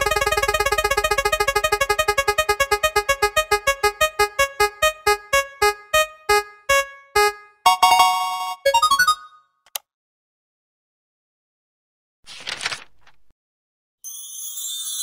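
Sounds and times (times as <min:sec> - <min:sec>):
prize wheel synth ticks: 0:00.0 - 0:09.4.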